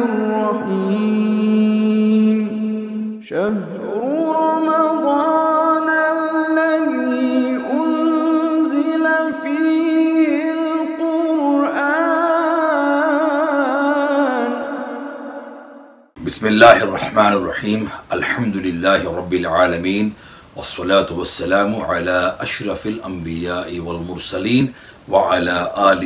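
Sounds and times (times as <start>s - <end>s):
man chanting a slow melody: 16.2s - 26.0s.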